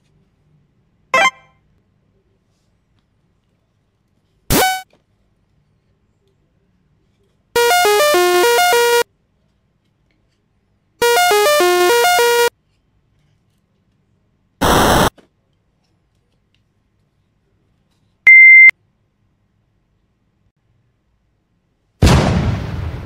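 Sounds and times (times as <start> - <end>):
twinkly electronic jingle: 1.2 - 1.5
buzzy electronic blast: 7.6 - 9.0, 11.0 - 12.5, 14.6 - 15.1.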